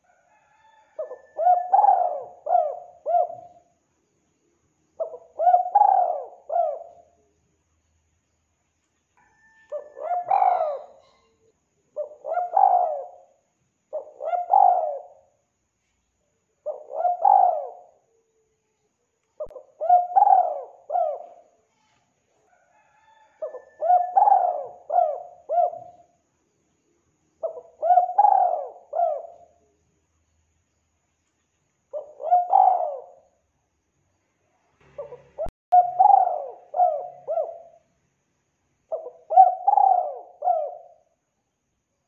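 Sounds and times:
dove cooing: 0.0s - 3.7s, 5.0s - 7.3s, 9.4s - 15.3s, 16.6s - 18.3s, 19.4s - 21.6s, 22.6s - 26.2s, 27.4s - 29.7s, 31.9s - 33.3s, 34.9s - 37.8s, 38.9s - 41.2s.

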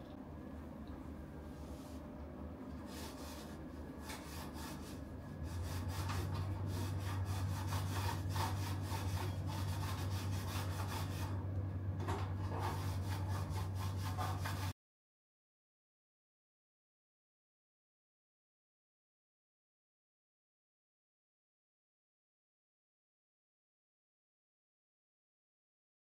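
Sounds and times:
steady low hum: 0.0s - 14.7s.

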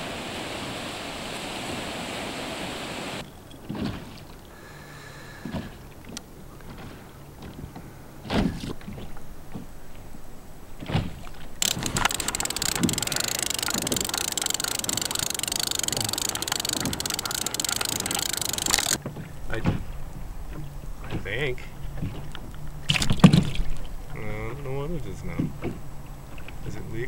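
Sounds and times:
fishing reel clicking rattle: 11.6s - 19.0s.

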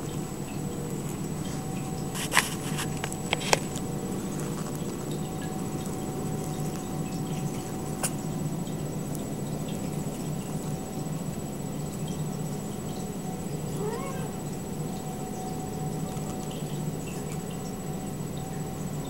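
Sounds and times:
low room hum: 0.0s - 19.0s
kittens scuffling: 1.0s - 8.4s.

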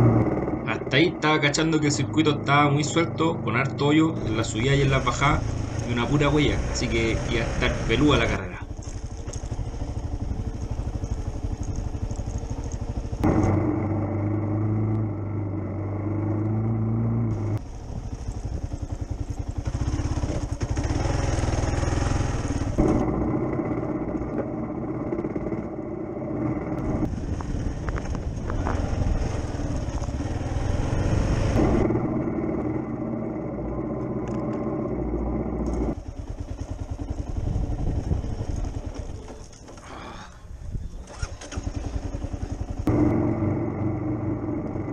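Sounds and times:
motorcycle engine running: 0.0s - 39.9s, 40.7s - 44.9s.

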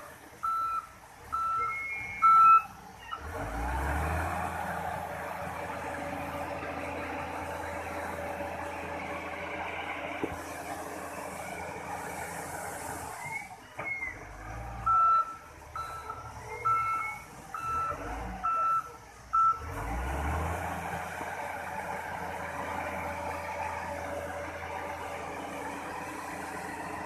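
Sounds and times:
loader engine running: 0.0s - 27.0s
reversing alarm beeping: 0.4s - 3.3s, 13.2s - 19.7s.

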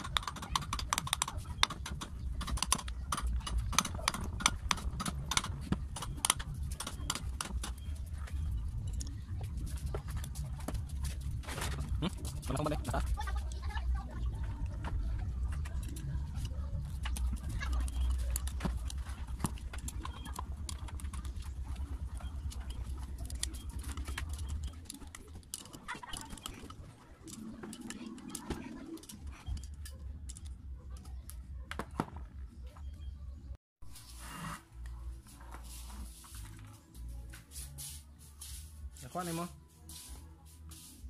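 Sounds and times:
metal parts clicking and scraping: 0.0s - 13.6s, 15.2s - 31.1s.

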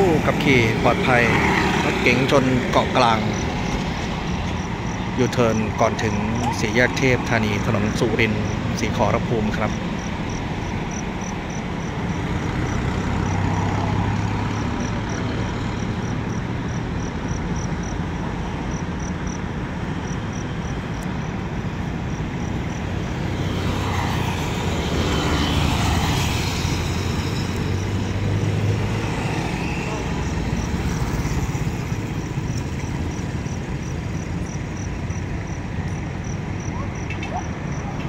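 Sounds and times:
cars passing by: 0.0s - 38.0s.

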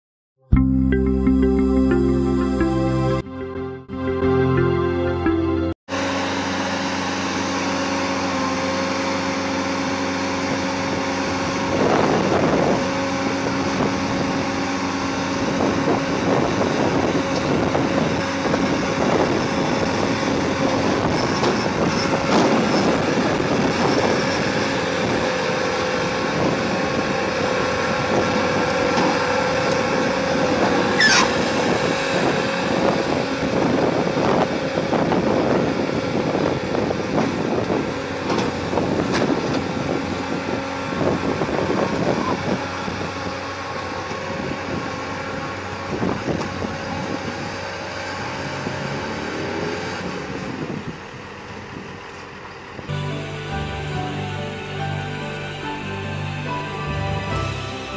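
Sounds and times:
diesel loader engine droning: 0.5s - 57.9s
brief high squeal: 30.9s - 31.6s.

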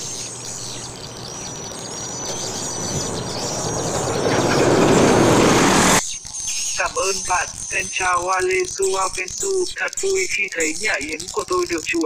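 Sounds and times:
rushing noise: 0.0s - 6.0s
swiftlets twittering: 0.0s - 12.0s.

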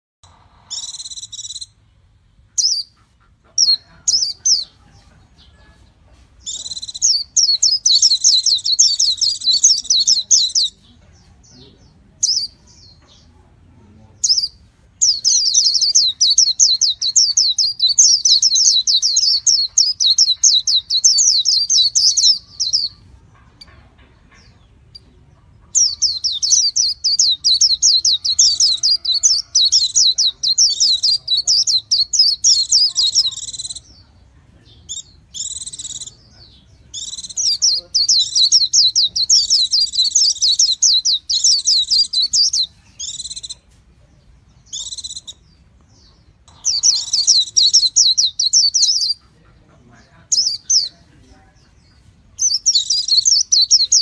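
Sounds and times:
bird warbling: 46.4s - 49.5s.

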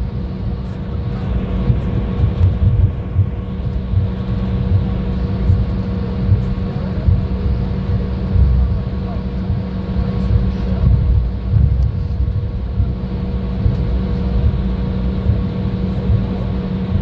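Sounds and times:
low engine rumble: 0.0s - 17.0s
mid-pitched hum: 0.0s - 17.0s.

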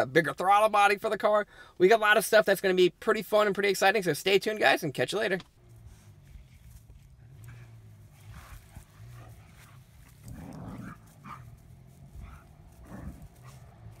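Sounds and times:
dogs play-fighting growls: 6.2s - 14.0s.

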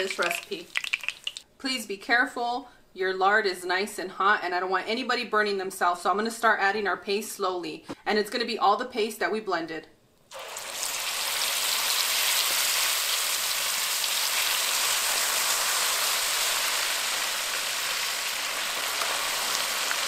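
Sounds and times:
paste sizzling in hot fat: 0.0s - 1.4s, 10.3s - 20.0s.

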